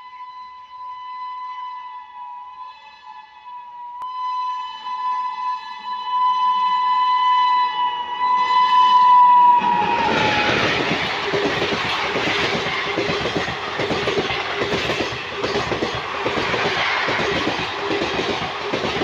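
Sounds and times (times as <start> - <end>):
locomotive horn blast: 0.0 - 10.9
train wheels clattering over track: 9.6 - 19.0.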